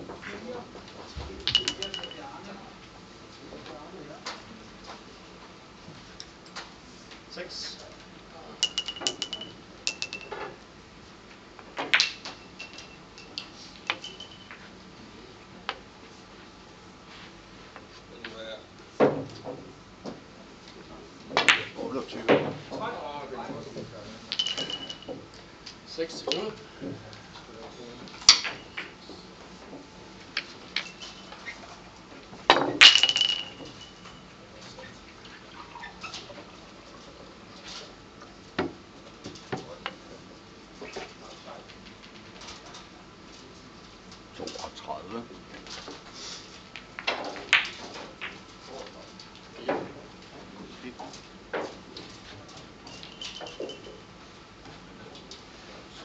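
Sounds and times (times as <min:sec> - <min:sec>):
billiard balls clicking: 0:01.4 - 0:02.4, 0:08.6 - 0:10.6, 0:11.7 - 0:14.6, 0:24.3 - 0:25.5, 0:26.1 - 0:27.0, 0:28.1 - 0:29.1, 0:29.8 - 0:31.6, 0:32.4 - 0:34.2, 0:46.6 - 0:49.6.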